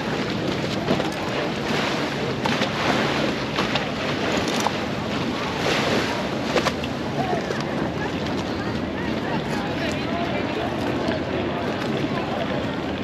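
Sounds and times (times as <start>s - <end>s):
water and boat noise: 0.0s - 13.0s
faint voices of passers-by: 7.1s - 13.0s.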